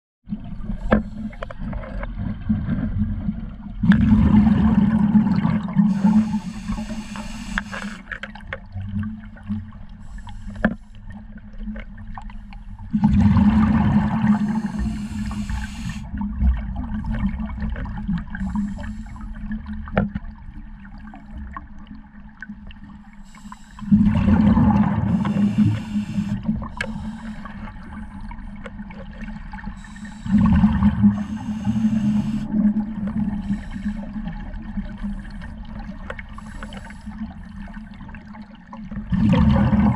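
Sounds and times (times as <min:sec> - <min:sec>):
gurgling exhaled bubbles: 0:00.3 - 0:08.0, 0:12.8 - 0:20.0, 0:23.8 - 0:39.9
faint clicks: 0:06.0 - 0:08.7, 0:36.0 - 0:37.1.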